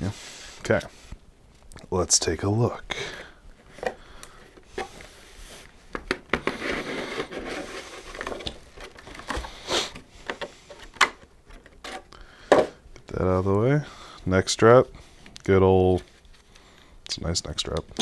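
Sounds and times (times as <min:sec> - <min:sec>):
plastic tray rustling: 0:03.6 - 0:12.6.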